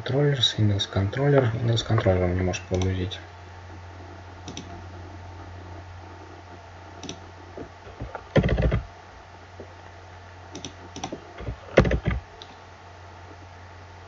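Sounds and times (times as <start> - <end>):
low electrical hum: 0.0 - 14.0
keyboard keystrokes: 4.4 - 4.8, 7.0 - 7.2, 10.5 - 12.2
mouse clicks: 4.4 - 4.8, 7.0 - 7.2, 10.5 - 12.6.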